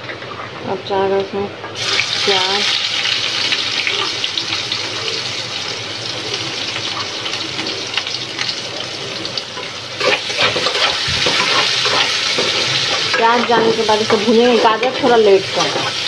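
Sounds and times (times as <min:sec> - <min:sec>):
onion sizzling in hot fat: 0:00.8 - 0:16.0
steel spatula scraping pan: 0:09.6 - 0:16.0.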